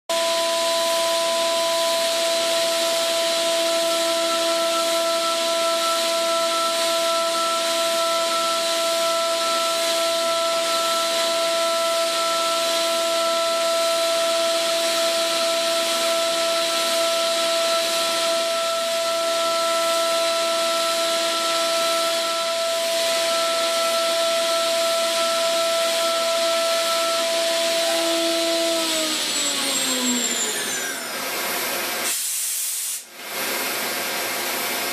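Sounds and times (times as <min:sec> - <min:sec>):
milling spindle whine: 0:00.5 - 0:32.0
coolant jet hiss: 0:31.6 - 0:34.8.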